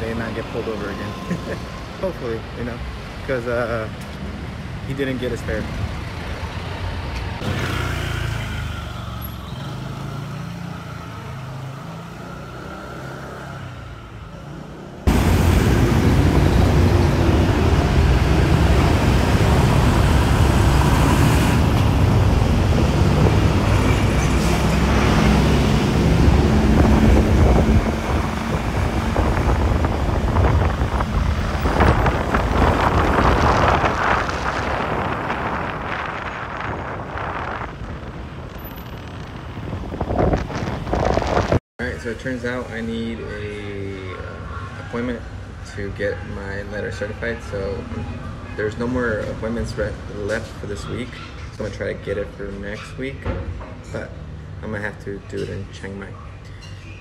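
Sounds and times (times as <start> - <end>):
street sound: 0.0 - 57.0
surrounding traffic: 0.0 - 57.0
wind rushing on microphone: 15.1 - 41.6.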